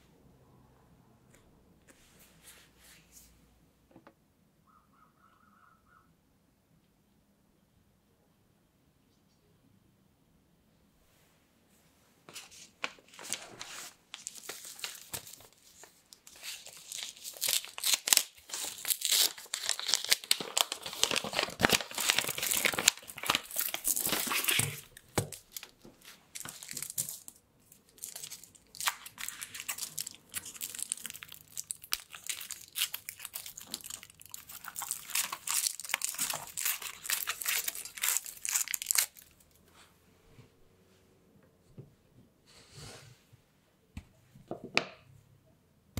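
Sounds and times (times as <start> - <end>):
wrapper rustling and crinkling: 12.5 - 39.6.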